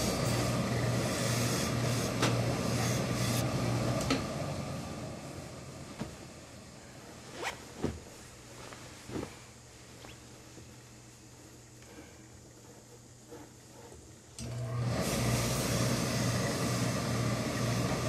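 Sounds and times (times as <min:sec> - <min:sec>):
steam iron hissing: 0:00.0 - 0:03.5, 0:14.5 - 0:18.0
fabric handling: 0:06.8 - 0:11.4.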